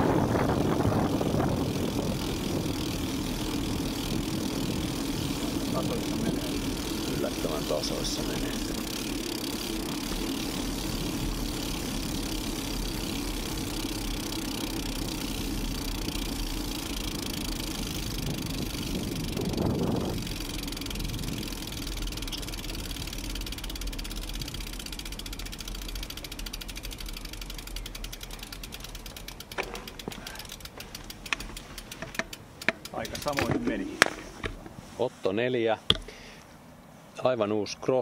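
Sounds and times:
wind rushing over microphone: 0.0s - 12.4s, 14.9s - 21.8s
bicycle freehub ticking: 0.0s - 34.7s, 35.9s - 36.5s
bike tyres humming on asphalt: 0.0s - 38.0s.

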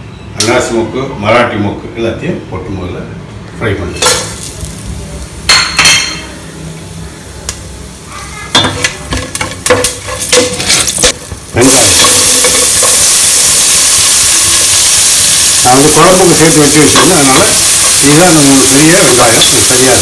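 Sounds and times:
onions sizzling in hot oil: 4.0s - 20.0s
spatula stirring spices in oil: 8.7s - 15.6s.

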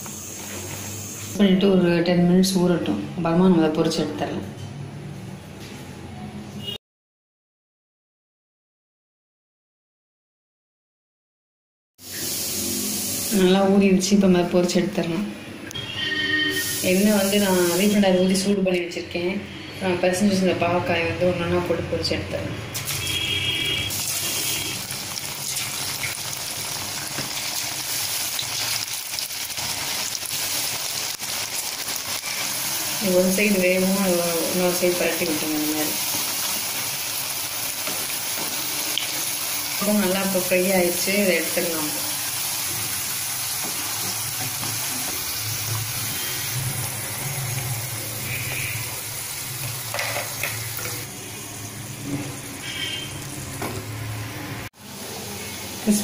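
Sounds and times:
gourd slices deep frying in oil: 16.4s - 18.6s, 22.8s - 56.0s.

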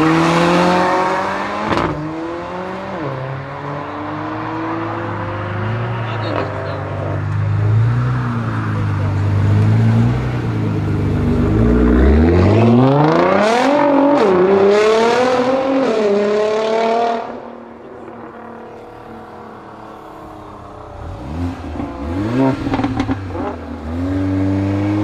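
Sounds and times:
car engine accelerating: 0.0s - 25.0s.

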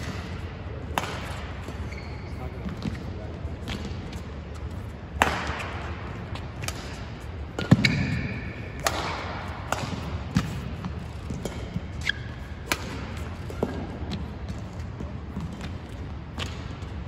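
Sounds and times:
rackets hitting shuttlecock: 0.0s - 2.0s, 2.6s - 17.0s
shoes squeaking on court: 1.2s - 5.1s, 6.3s - 8.7s, 9.4s - 16.7s.

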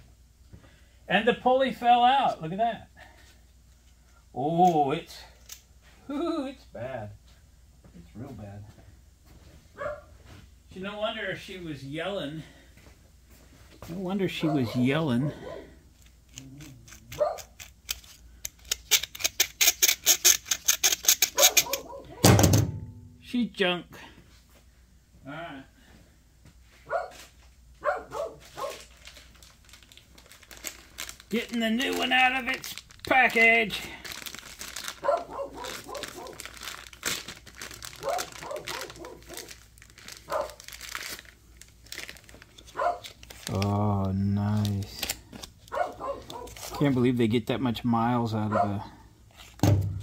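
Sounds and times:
plastic packaging crinkling: 16.0s - 21.9s, 28.2s - 47.1s
pulley bearing clicking and grinding: 16.0s - 21.9s.

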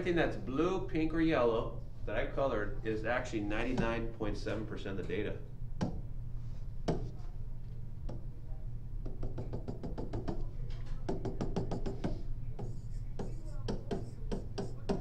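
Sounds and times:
steady low hum: 0.0s - 15.0s
pen tapping on tablet screen: 9.0s - 10.5s, 11.1s - 15.0s.

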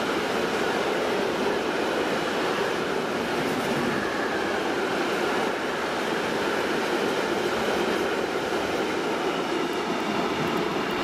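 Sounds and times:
freight train wheels on rails: 0.0s - 11.0s.

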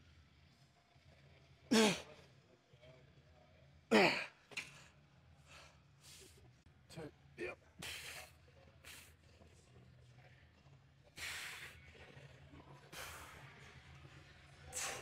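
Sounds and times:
faint breaths: 7.8s - 15.0s.

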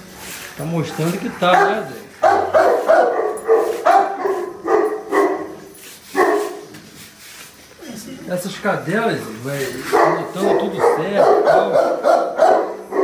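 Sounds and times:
dog barking: 1.0s - 6.7s, 9.9s - 13.0s.

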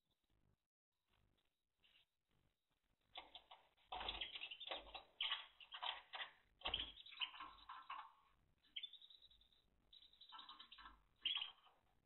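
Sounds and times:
canary chirps: 3.1s - 12.0s.

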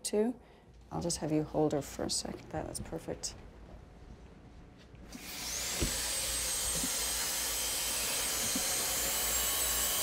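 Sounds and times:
high-speed drill whining: 5.1s - 10.0s.

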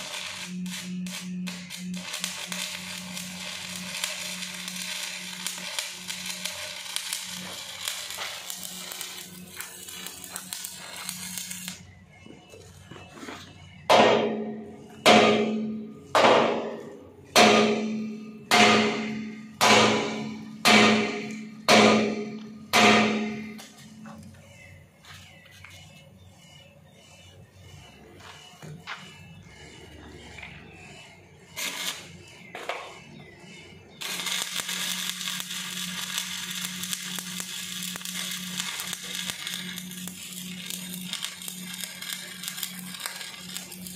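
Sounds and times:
arc welding crackling: 0.0s - 12.0s, 14.3s - 26.7s, 31.6s - 32.9s, 34.0s - 43.9s
hammer striking steel: 13.9s - 24.1s.

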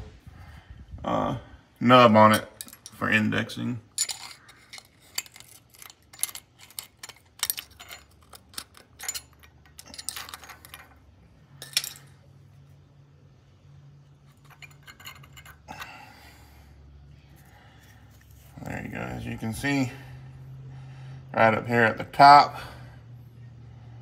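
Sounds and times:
screwdriver clicking on metal parts: 4.0s - 11.0s.

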